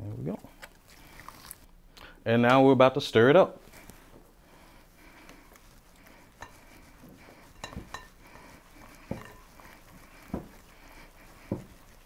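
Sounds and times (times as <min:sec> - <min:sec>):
dough stirred in glass bowl: 0:04.9 - 0:12.0.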